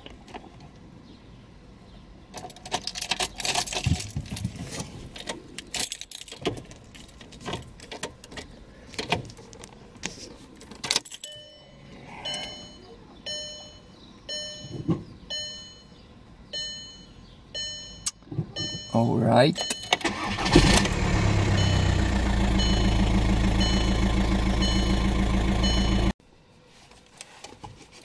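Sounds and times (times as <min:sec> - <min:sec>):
car keys jangling: 0:02.4 - 0:09.1, 0:10.6 - 0:11.4
dashboard warning chime: 0:11.2 - 0:20.4, 0:21.4 - 0:26.2.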